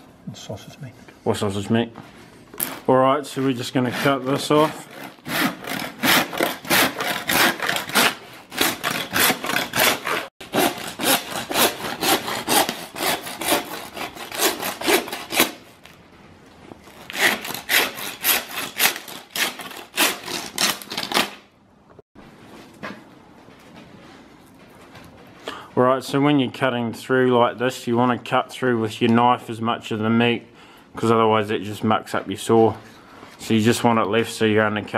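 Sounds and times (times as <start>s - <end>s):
hand saw cutting bone: 2.6s - 15.7s, 17.0s - 21.4s.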